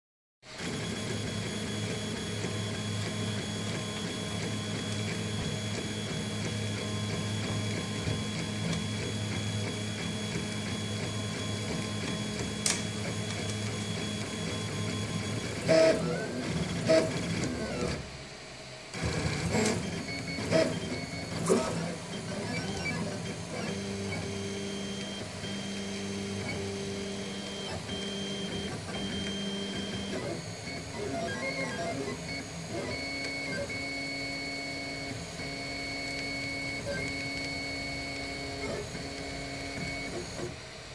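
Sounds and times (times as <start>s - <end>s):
stepper motors humming: 19.0s - 40.6s.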